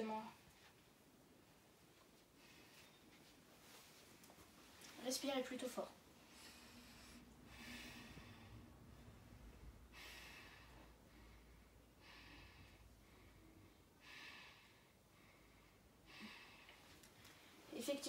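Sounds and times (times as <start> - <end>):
boy breathing deeply: 6.2 - 17.7.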